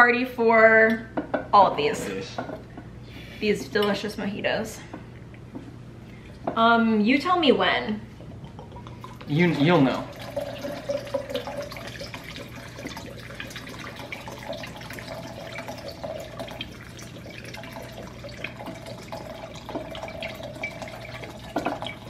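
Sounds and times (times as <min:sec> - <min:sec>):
liquid pouring into pitcher of ice: 0:08.6 - 0:22.0.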